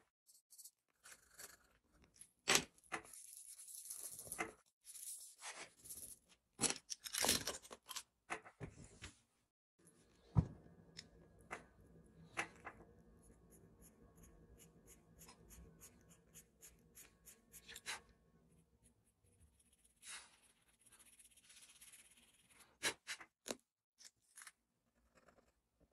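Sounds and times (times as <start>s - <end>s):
pencil scratching on paper: 13.2s - 18.2s, 18.8s - 23.1s.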